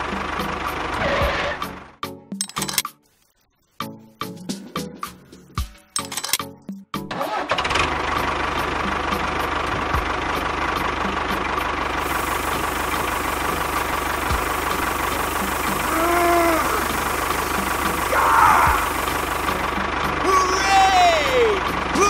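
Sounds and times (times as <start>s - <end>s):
toy tractor motor running: 12.0s - 20.4s.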